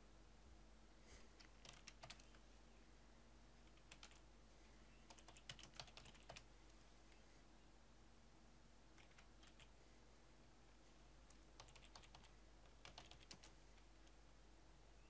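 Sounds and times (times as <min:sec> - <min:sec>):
faint typing on computer keyboard: 0:01.3 - 0:02.4, 0:03.6 - 0:04.3, 0:05.0 - 0:07.2, 0:08.9 - 0:09.8, 0:11.2 - 0:14.3.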